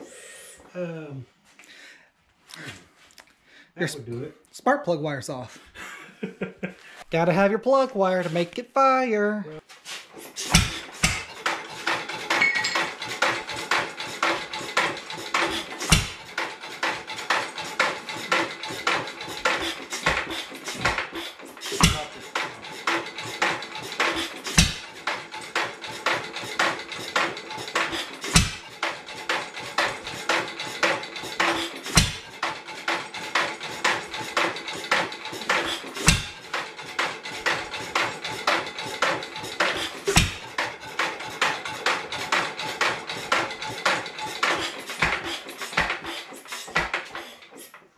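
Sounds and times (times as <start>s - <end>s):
steady metallic clicking: 10.1s - 47.9s
engine deep thump: 10.5s - 11.5s, 15.8s - 16.4s, 21.8s - 22.4s, 23.2s - 25.1s, 27.8s - 28.7s, 40.1s - 40.7s
engine firing with heavy low thumps: 10.5s - 46.1s.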